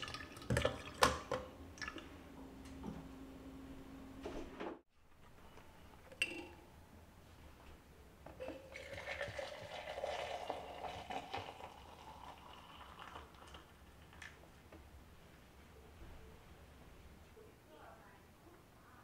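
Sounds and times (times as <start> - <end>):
liquid pouring into a jug: 0.0 - 2.1, 8.4 - 14.4.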